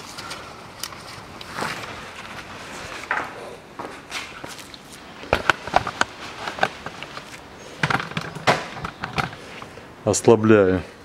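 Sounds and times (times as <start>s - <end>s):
handling clicks and knocks: 5.3s - 9.5s.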